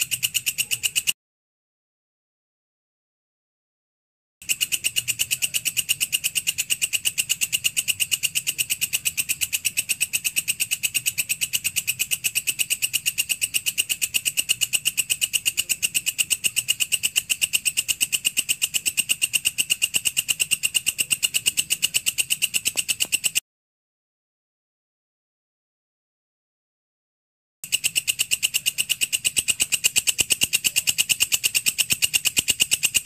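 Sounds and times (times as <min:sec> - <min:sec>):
insect clicking call: 0:00.0 - 0:01.2, 0:04.4 - 0:23.4, 0:27.6 - 0:33.0.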